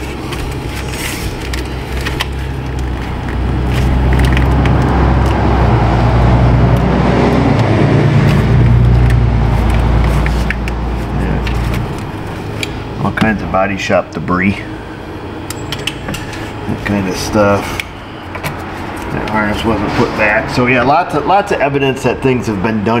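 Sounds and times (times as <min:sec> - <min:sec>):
hands handling wiring: 0:00.0 - 0:13.4, 0:15.4 - 0:19.7
vehicle engine rumble: 0:00.0 - 0:22.9.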